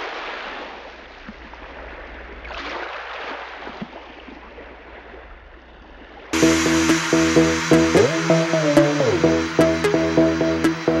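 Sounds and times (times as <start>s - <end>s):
low hum: 6.4s - 11.0s.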